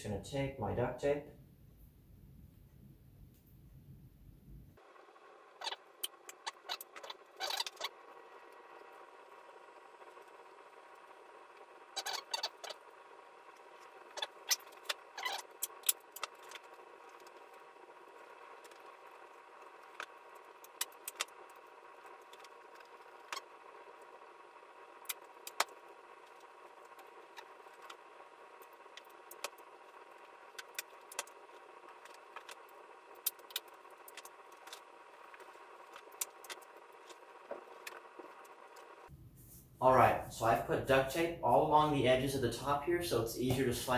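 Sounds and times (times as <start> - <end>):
duct tape clicks and crackles: 18.2 - 24.1, 25.0 - 39.0.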